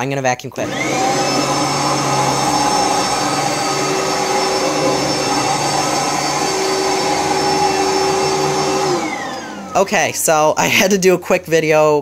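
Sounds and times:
vacuum cleaner running on carpet: 0.6 - 10.5.

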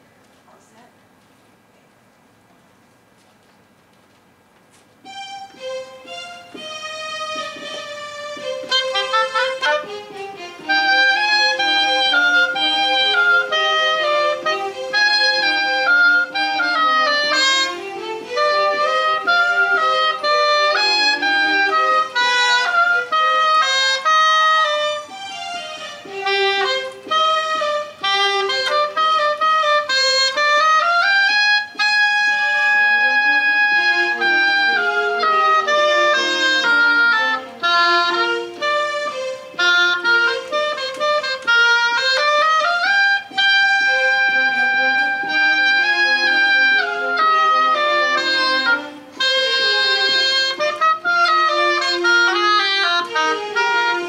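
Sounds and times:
keyboard violin accompaniment: 5.0 - 54.0
oboe melody: 5.0 - 54.0.

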